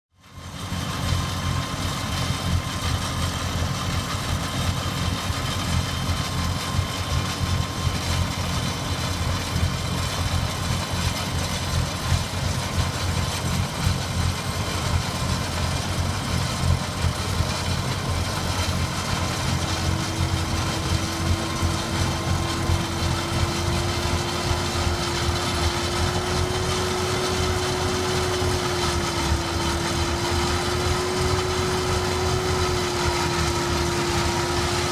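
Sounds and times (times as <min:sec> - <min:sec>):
tractor engine rumbling: 0:00.3 - 0:34.9.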